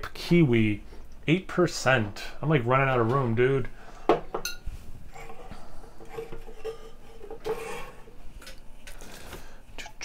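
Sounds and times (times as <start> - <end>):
cans scraping on wooden table: 5.1 - 8.2.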